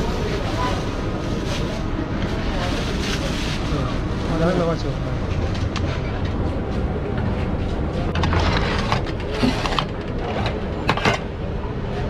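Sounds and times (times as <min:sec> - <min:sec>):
utensils clattering: 0:08.1 - 0:11.3.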